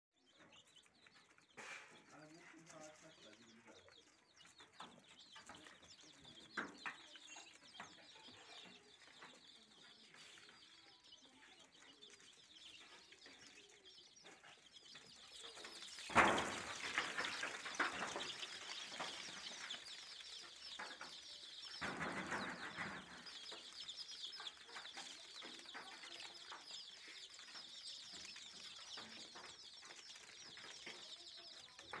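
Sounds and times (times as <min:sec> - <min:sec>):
chicks peeping: 0:00.2 - 0:32.0
rustling: 0:09.2 - 0:32.0
thump: 0:16.1 - 0:18.2, 0:21.8 - 0:23.2.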